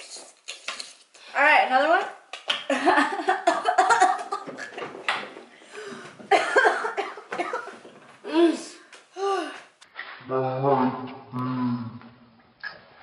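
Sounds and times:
women coughing: 6.3 - 7.7.

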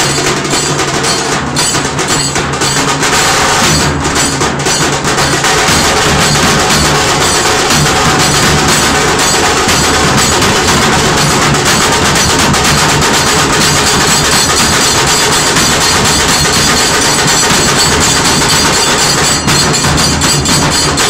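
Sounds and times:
barrel drums beaten with sticks: 0.0 - 21.0.

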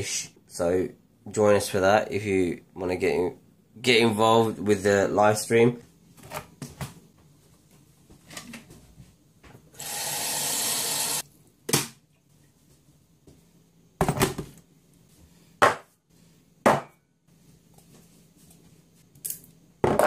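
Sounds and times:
tap water running into kettle: 9.8 - 11.2.

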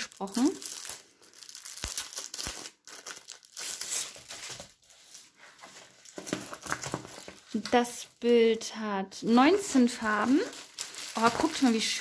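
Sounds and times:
plastic wrapping crinkling: 0.0 - 8.7, 9.3 - 12.0.

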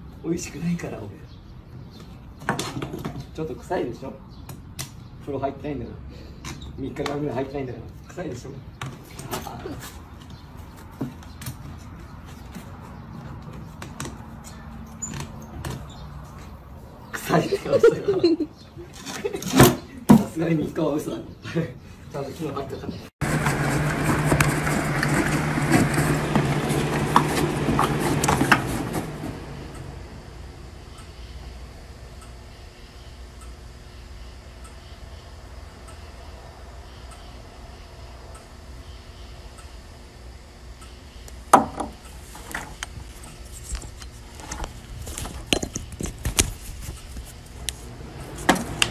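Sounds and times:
steady low hum: 22.9 - 48.9
horse eating from plastic tub: 23.2 - 29.6.

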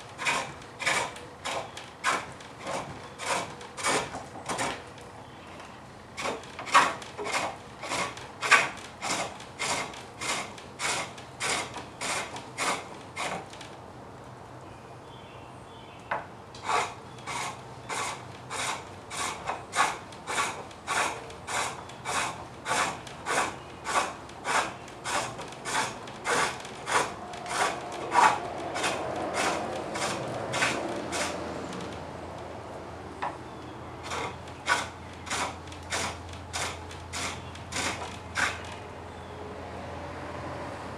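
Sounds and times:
chisel scraping on lathe: 0.0 - 4.8, 6.2 - 13.6, 16.6 - 32.0, 34.0 - 38.8.

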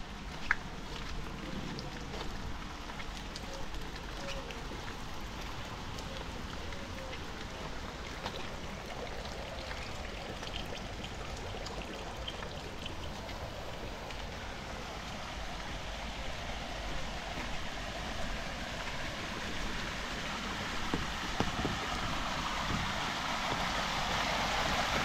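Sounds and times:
light drip ticks: 0.0 - 16.0
heavy rain falling: 12.8 - 25.0.

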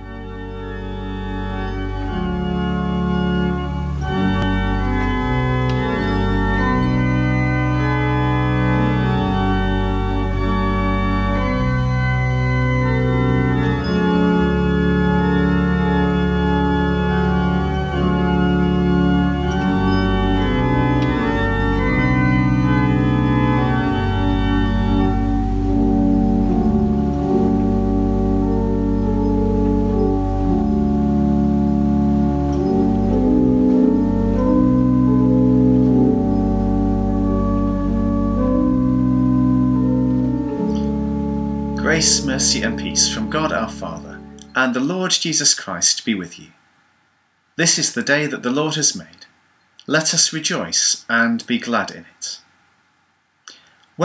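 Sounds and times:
organ playing slow chords: 0.0 - 44.8.

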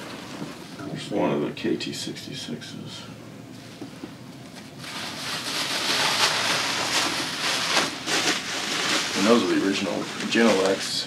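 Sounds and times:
packing wrap rustling: 4.7 - 11.0.

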